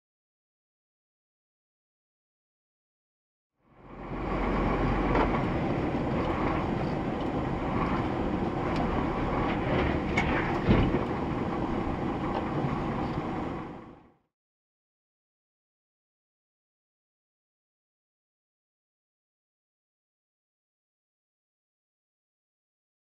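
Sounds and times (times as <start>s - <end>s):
car engine and road rumble: 3.6s - 14.2s.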